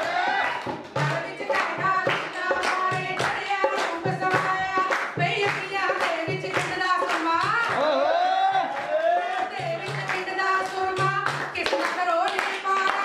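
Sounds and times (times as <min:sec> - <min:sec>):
group singing folk song: 0:00.0 - 0:04.0
rhythmic handclaps: 0:00.0 - 0:13.0.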